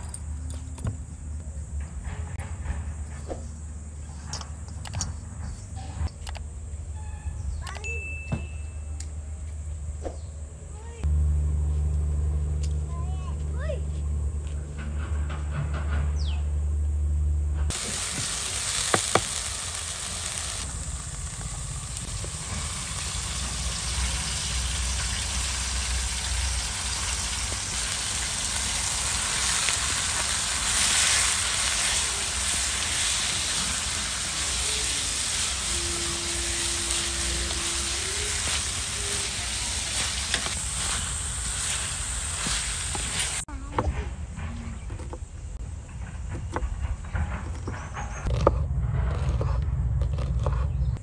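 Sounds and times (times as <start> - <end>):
meat sizzling in a pan: 17.7 - 43.5.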